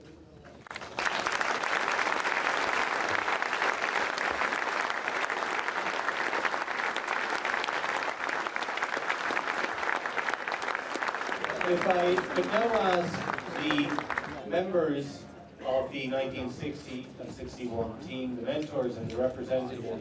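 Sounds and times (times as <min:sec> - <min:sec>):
audience applauding: 0:00.6 - 0:14.4.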